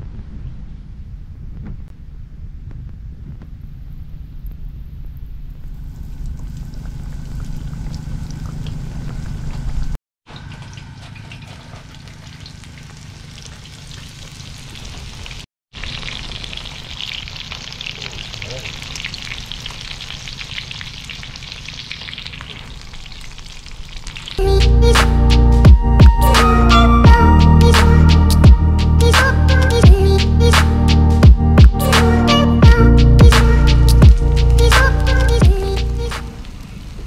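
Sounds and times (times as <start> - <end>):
low rumble: 0.0 - 10.0, 24.4 - 36.1
fish sizzling in hot oil: 10.5 - 24.4
music: 24.4 - 36.4.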